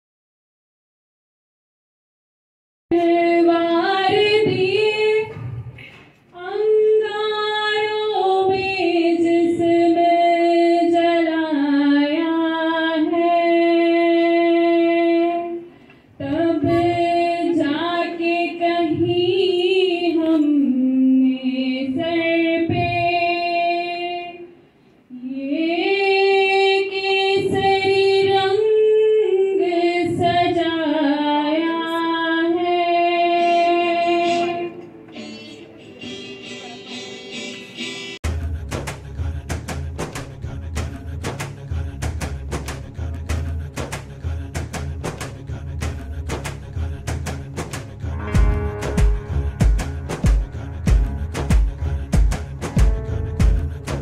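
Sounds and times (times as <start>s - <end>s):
woman singing into microphone: 2.9s - 24.5s, 25.1s - 34.9s
acoustic guitar: 33.3s - 54.0s.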